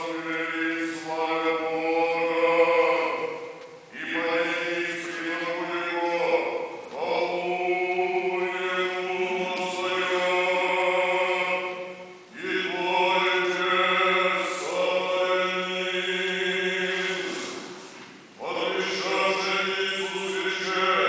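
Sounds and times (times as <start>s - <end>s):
liturgical chanting: 0.0s - 21.0s.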